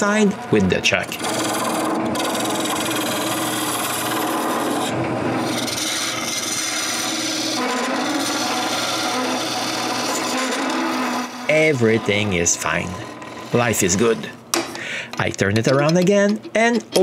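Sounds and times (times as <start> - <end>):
lathe humming: 0.0 - 15.2
tool scraping wood: 1.0 - 14.4.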